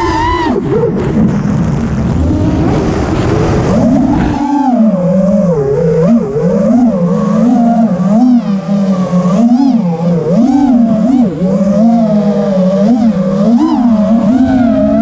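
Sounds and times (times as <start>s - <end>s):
drone motors whining: 0.0s - 15.0s
rough rushing noise: 0.8s - 4.9s.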